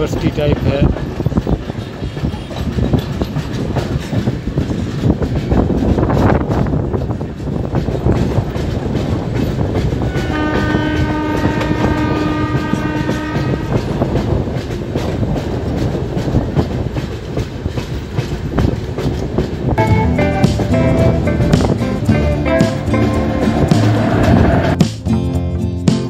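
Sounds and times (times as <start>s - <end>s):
train wheels clattering: 0.0s - 25.0s
train horn blast: 10.0s - 14.0s, 19.8s - 24.8s.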